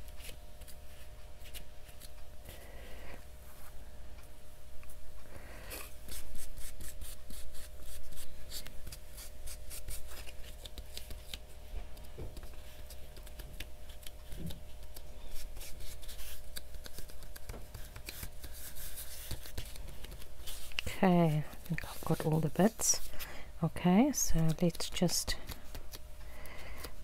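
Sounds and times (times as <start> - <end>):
gold leaf crinkling on paper: 6.1 - 23.2.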